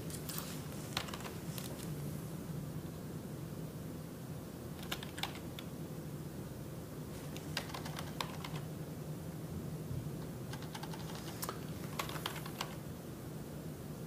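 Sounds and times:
low steady hum: 0.0 - 14.0
typing on computer keyboard: 1.0 - 1.4, 4.8 - 5.7, 7.2 - 8.7, 10.5 - 12.8.

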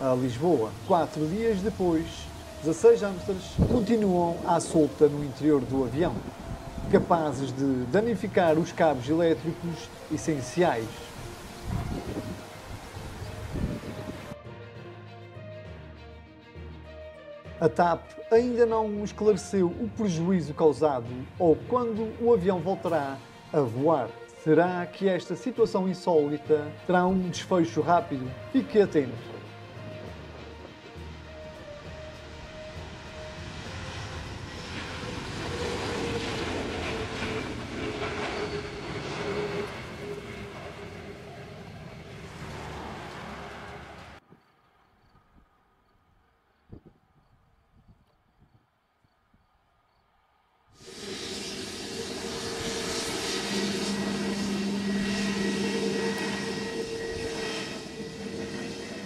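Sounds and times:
jet engines rumbling and whining: 0.0 - 14.4, 19.7 - 24.5, 27.8 - 44.2, 50.8 - 59.0.

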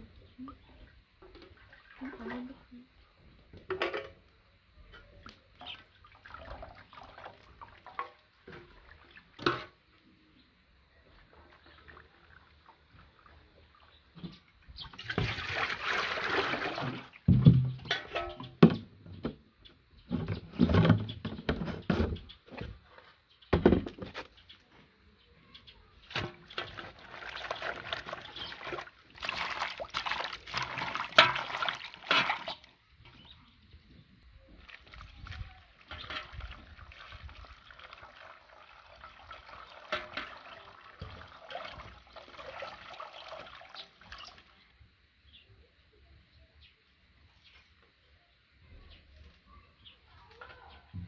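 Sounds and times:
water sloshing in metal basin: 1.2 - 2.9, 5.0 - 10.0, 11.2 - 19.3, 26.0 - 33.3, 34.4 - 44.7.

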